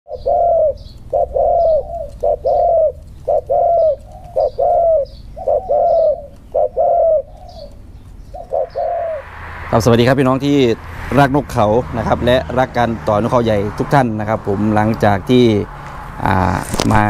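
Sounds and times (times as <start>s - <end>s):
dove cooing: 0.1s - 9.4s.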